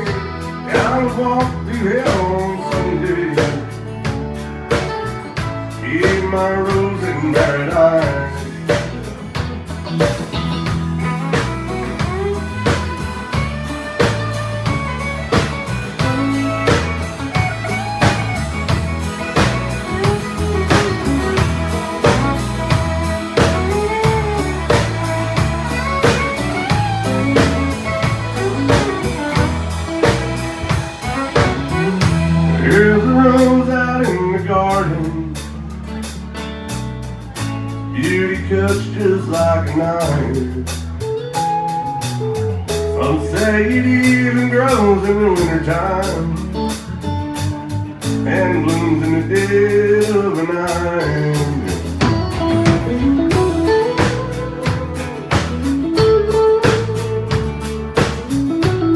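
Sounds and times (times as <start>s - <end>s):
fiddle bowing melody: 0.0s - 37.4s, 38.0s - 58.9s
country band playing: 0.0s - 58.9s.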